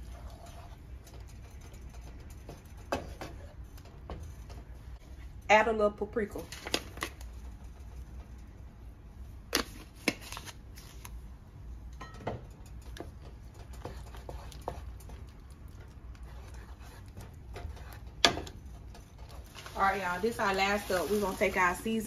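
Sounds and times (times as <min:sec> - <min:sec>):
wooden spoon stirring in pan: 0:00.0 - 0:05.4, 0:12.4 - 0:22.0.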